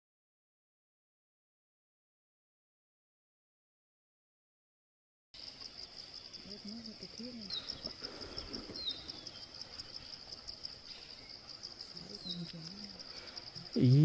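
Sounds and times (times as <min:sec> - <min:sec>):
bird chirps: 0:05.4 - 0:14.0
insects trilling: 0:05.4 - 0:14.0.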